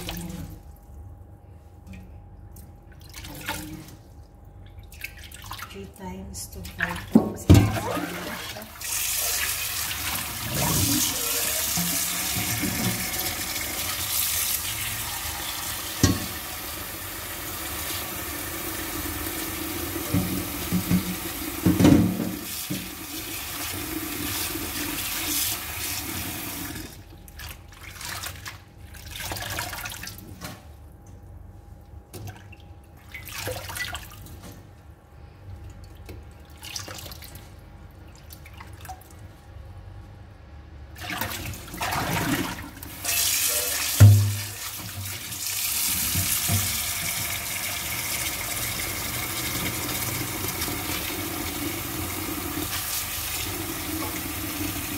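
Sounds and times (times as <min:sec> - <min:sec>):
water splashes and drips: 0:01.9 - 0:06.0, 0:31.8 - 0:34.7, 0:35.5 - 0:39.4
tap water running into bowl: 0:07.1 - 0:26.8, 0:42.0 - 0:54.9.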